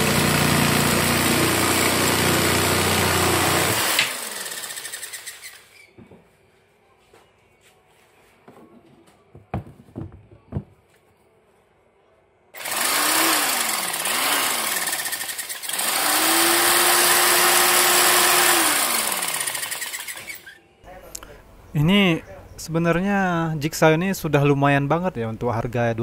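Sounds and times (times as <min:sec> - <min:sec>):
jigsaw sawing wood: 0:00.0 - 0:05.8, 0:12.6 - 0:20.6.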